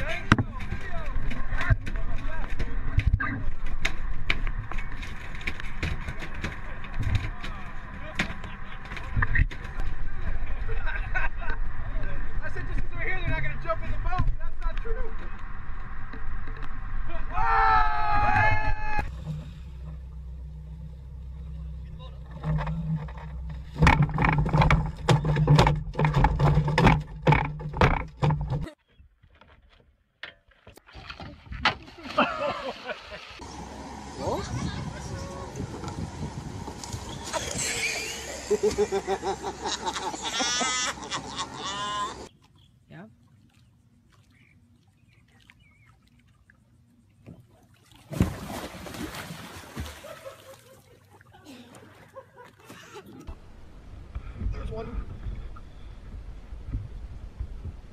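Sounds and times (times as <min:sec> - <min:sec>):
outboard motor idling: 0:19.0 - 0:28.7
splashing water: 0:30.8 - 0:38.8, 0:42.3 - 0:53.6
loud splash into water: 0:48.1 - 0:50.3.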